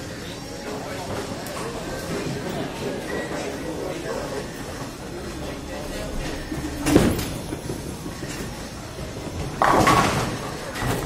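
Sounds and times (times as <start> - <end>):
bowling ball rolling on wood: 6.2 - 11.0
bowling pins crashing: 9.0 - 11.0
bowling ball thud: 9.4 - 11.0.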